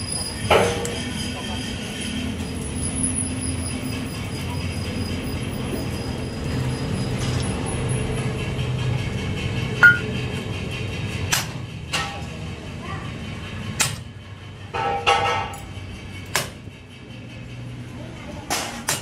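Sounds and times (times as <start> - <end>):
low mechanical rumble: 0.0 - 18.5
metal clank: 13.8 - 16.6.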